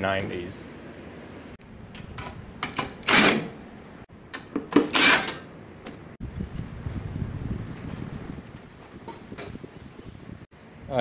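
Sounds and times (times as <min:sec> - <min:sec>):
impact driver bursts: 0:03.0 - 0:03.6.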